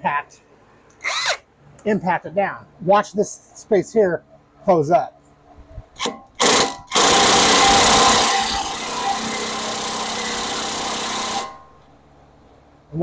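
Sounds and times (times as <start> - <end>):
impact wrench running: 6.0 - 11.9.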